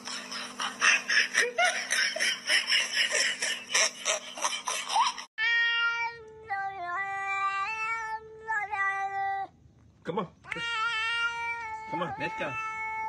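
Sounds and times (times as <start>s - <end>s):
person giggling: 0.0s - 5.3s
steady low hum: 0.0s - 5.3s.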